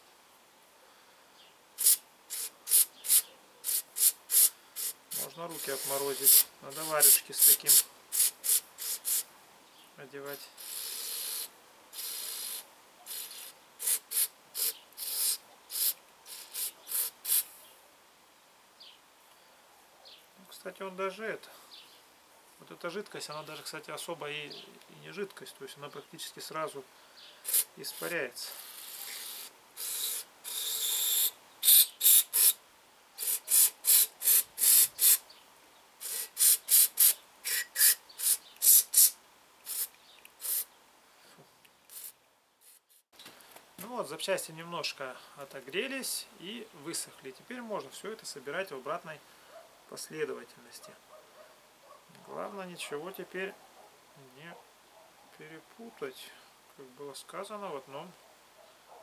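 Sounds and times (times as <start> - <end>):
aerosol spray hissing: 1.8 - 9.3, 10.5 - 17.6, 27.4 - 32.6, 33.2 - 35.2, 36.0 - 40.7, 41.9 - 43.0.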